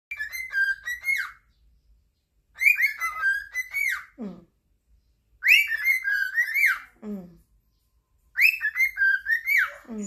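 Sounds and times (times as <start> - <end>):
cockatiel warbling whistles: 5.4 - 6.9, 8.4 - 9.7.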